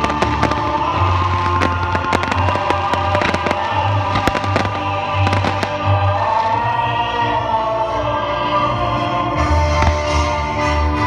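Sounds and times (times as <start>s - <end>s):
fireworks popping and crackling: 0.0s - 6.8s
music with long held notes: 0.0s - 11.0s.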